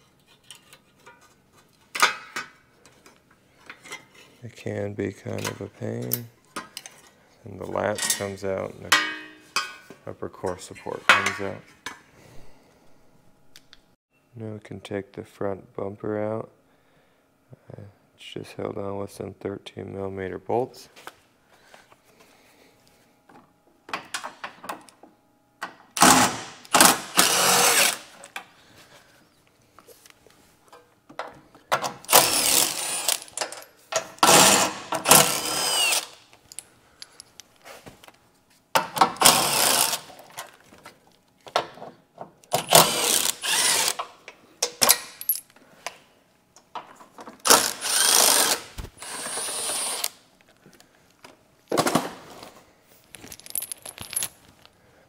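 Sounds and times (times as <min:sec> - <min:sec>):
cordless power tool spinning bolts: 0:26.0 - 0:28.1, 0:32.0 - 0:33.4, 0:34.2 - 0:36.2, 0:39.2 - 0:40.1, 0:42.6 - 0:44.0, 0:47.4 - 0:50.1.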